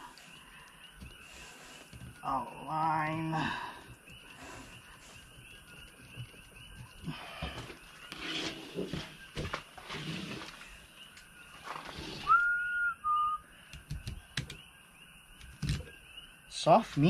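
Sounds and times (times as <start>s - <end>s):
scraping rustles on plastic table: 7.6s - 10.7s.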